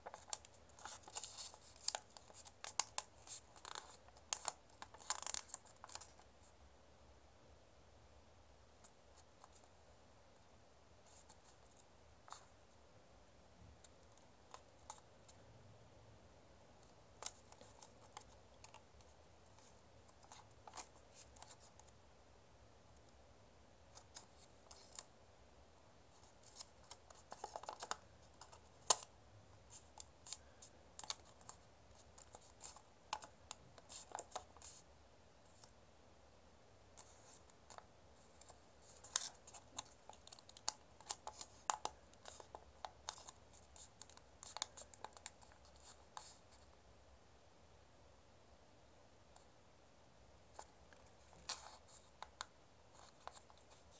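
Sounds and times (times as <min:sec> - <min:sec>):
paper being folded and creased: 0:00.0 - 0:06.2.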